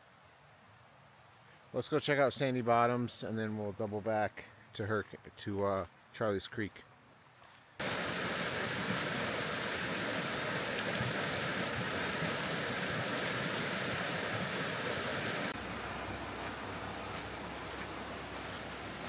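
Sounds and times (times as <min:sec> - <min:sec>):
creek rushing over rocks: 0:07.8 - 0:19.0.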